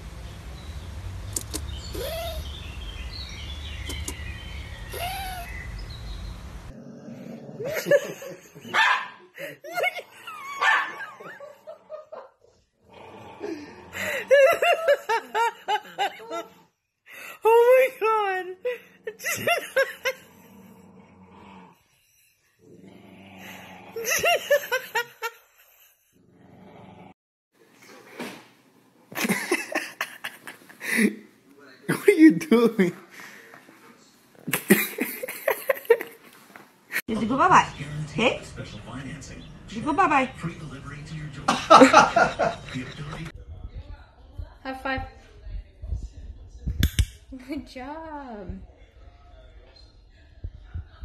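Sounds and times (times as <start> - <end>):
faint bird chirps: 0.3 - 6.4
dog grumbling: 6.7 - 8.0, 12.8 - 14.5, 20.1 - 21.9, 22.6 - 24.1, 26.2 - 27.2
dogs yipping and barking: 8.6 - 9.2, 10.2 - 11.6
dog yelping: 10.5 - 11.1
steady low rumble: 43.3 - 49.3, 50.1 - 51.0.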